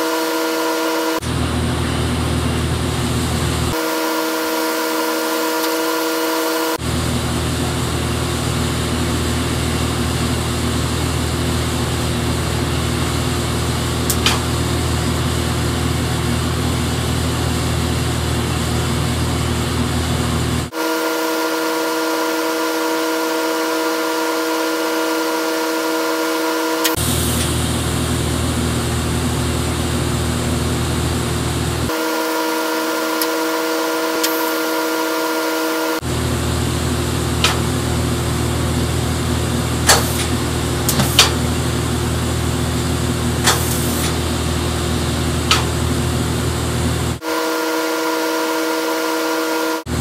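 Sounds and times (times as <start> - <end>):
welding arc buzzing and hissing: 0.0 - 47.2
sharp click: 14.1 - 14.4, 34.2 - 34.4, 45.5 - 45.7.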